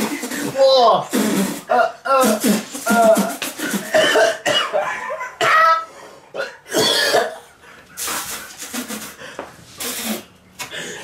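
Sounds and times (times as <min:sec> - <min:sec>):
man coughing and sputtering: 0:00.0 - 0:09.2.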